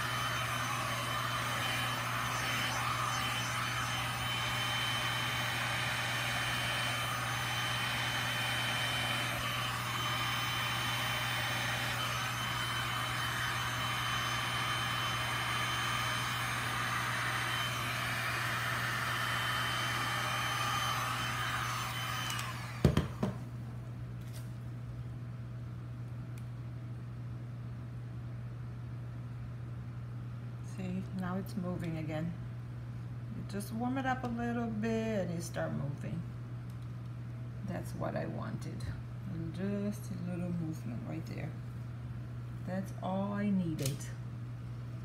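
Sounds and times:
heat gun blowing hot air: 0:00.0 - 0:23.4.

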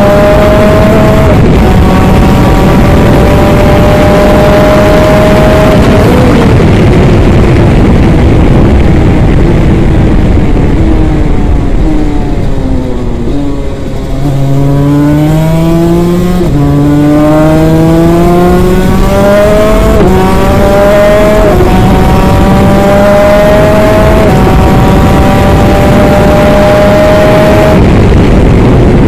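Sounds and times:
two-stroke kart engine revving: 0:13.0 - 0:28.2.

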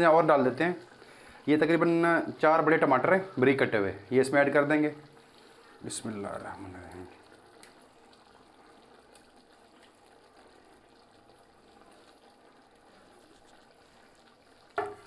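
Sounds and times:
broth simmering and bubbling: 0:00.0 - 0:15.0
soft plops into pot: 0:14.7 - 0:15.0.

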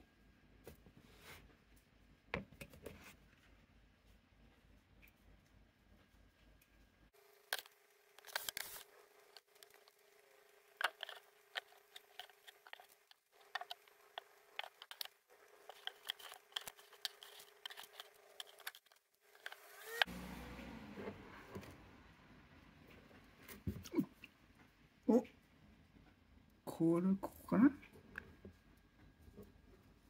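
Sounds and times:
fingers raking through sawdust: 0:10.8 - 0:20.1.

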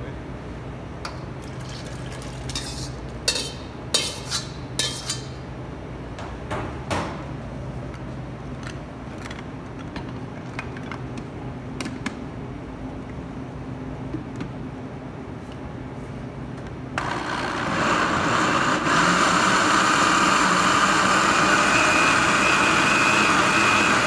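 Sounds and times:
metal wok and ladle clanking: 0:02.5 - 0:05.3.

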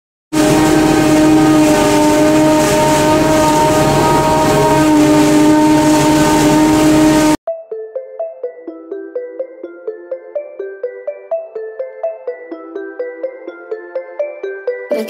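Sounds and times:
forage harvester running: 0:00.4 - 0:07.4.

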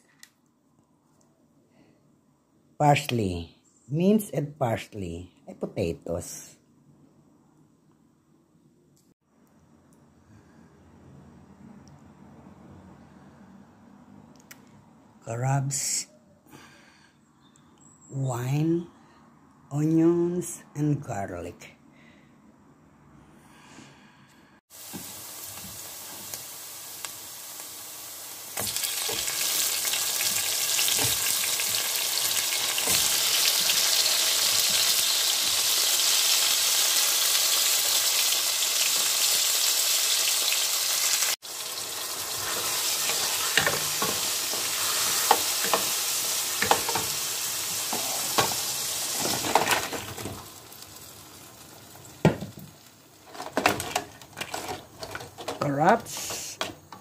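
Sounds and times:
vegetables sizzling in hot oil: 0:24.7 - 0:55.2
stirring clicks and knocks: 0:53.2 - 0:57.0.

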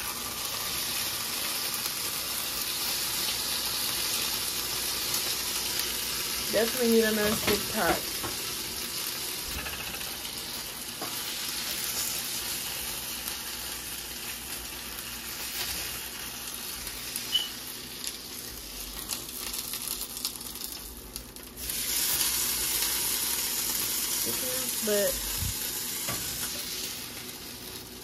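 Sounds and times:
taco sizzling in a pot: 0:00.0 - 0:28.0.

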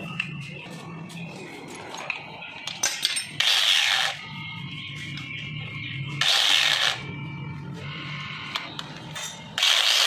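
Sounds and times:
metal tools clicking and scraping: 0:01.9 - 0:04.2, 0:09.0 - 0:10.0.

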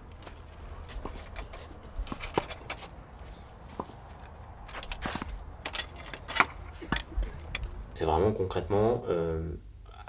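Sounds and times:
tennis ball bounces: 0:03.6 - 0:04.1.

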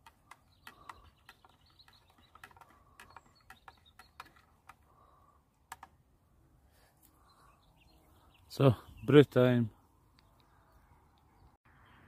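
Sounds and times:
distant bird chirps: 0:00.0 - 0:12.0.

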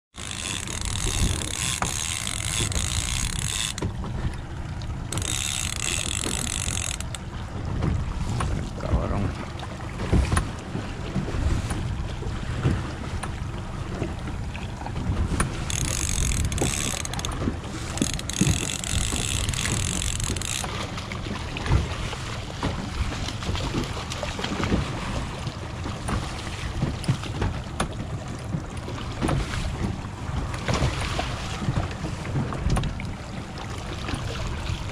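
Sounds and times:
water rushing past boat: 0:00.1 - 0:34.9
wind buffeting microphone: 0:00.6 - 0:04.4.

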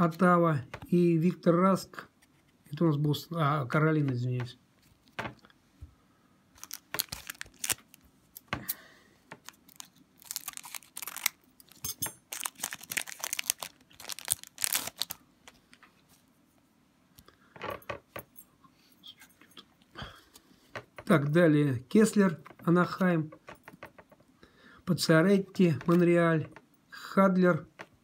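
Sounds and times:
scissors cutting wrapper: 0:06.6 - 0:08.0, 0:09.4 - 0:15.2
wrapper crackling: 0:06.6 - 0:08.5, 0:09.4 - 0:15.8
cards rustling: 0:06.6 - 0:08.6, 0:09.4 - 0:15.8.

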